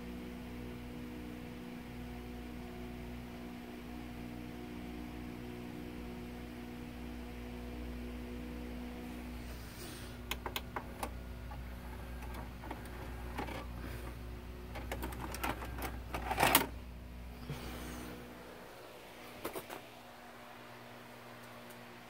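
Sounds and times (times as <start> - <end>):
low electrical hum: 0.0 - 22.0
mechanical clicks and rattles: 10.3 - 13.7, 14.7 - 16.8.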